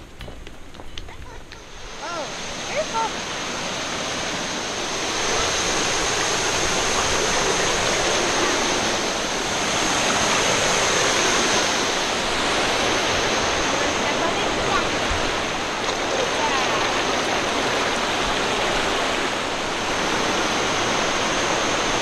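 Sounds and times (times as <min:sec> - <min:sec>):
waterfall splashing over rocks: 0:01.5 - 0:22.0.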